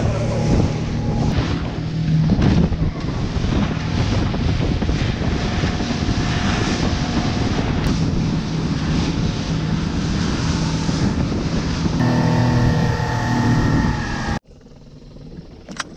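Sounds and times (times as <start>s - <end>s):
outboard motor running: 11.0s - 14.7s.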